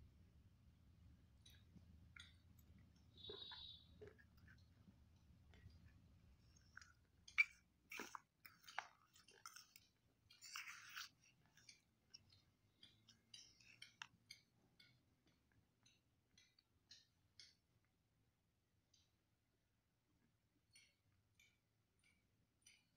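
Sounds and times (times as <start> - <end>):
spoon squelching in paste: 3.2 - 14.9.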